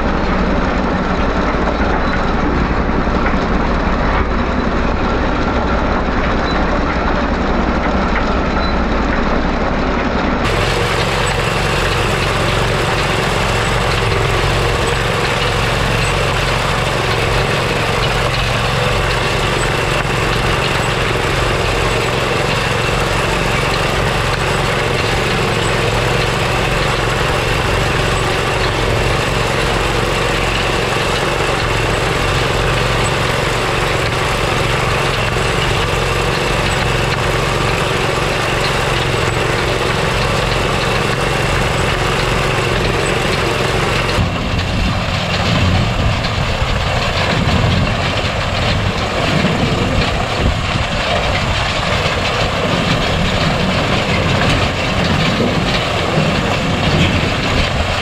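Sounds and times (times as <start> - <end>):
small engine running under load: 0.0 - 58.0.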